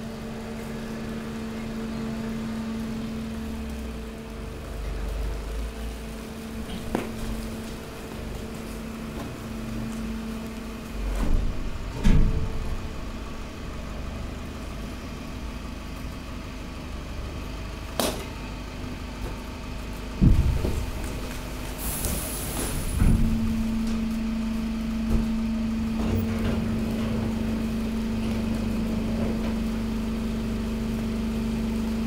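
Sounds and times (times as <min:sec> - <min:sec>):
hydraulic power unit humming: 0:18.2 - 0:32.0
sharp knocks and thumps: 0:20.2 - 0:21.0.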